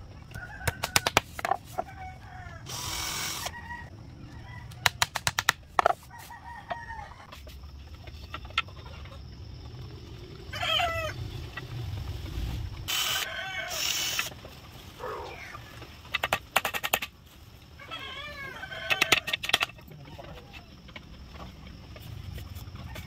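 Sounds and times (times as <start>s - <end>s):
hammer driving nails into bamboo: 0.6s - 1.6s, 4.8s - 6.0s
chickens clucking: 6.1s - 12.1s.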